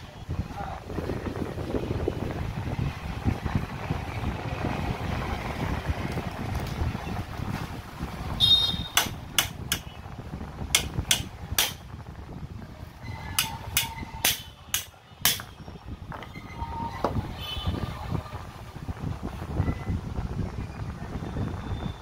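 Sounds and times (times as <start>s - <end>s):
hammer striking metal: 8.9s - 9.9s, 10.8s - 11.8s, 13.4s - 15.5s.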